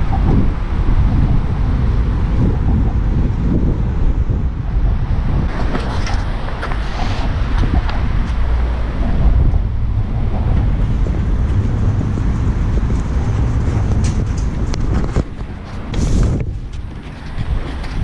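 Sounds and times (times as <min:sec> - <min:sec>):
wind buffeting microphone: 0:00.0 - 0:18.0
footsteps on steel grating: 0:05.5 - 0:18.0.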